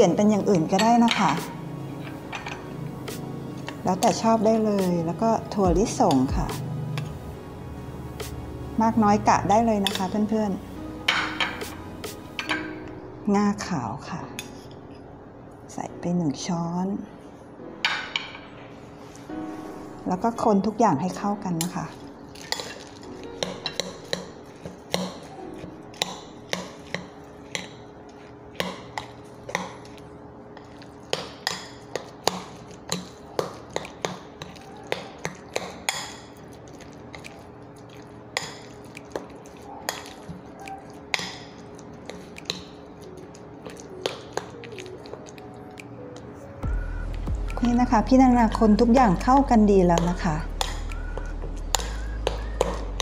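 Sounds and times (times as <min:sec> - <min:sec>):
spoon stirring thick mixture: 0:21.6 - 0:53.0
spoon clinking against bowl: 0:22.4 - 0:25.4.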